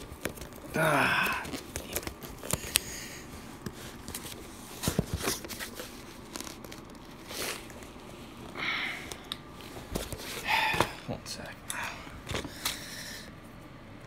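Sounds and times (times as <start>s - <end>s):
paper and cardboard tearing: 0.0s - 3.0s.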